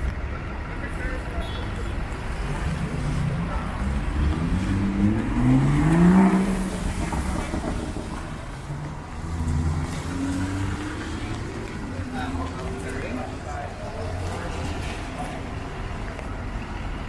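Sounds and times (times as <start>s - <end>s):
traffic on wet road: 0.0s - 17.0s
vehicle engine accelerating: 2.3s - 13.2s.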